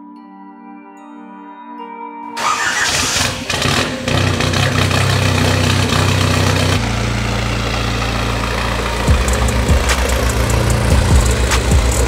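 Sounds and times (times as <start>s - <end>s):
truck engine idling: 2.4s - 12.0s.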